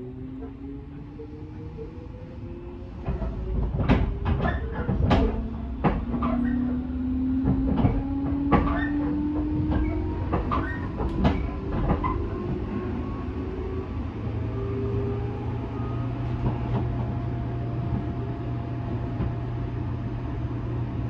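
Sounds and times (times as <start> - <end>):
wheels clacking over rail joints: 3.0 - 12.7.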